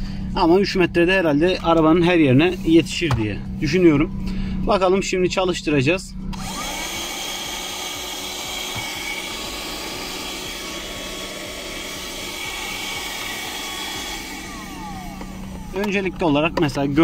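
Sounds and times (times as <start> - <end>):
handheld vacuum cleaner whining: 6.4 - 17.0.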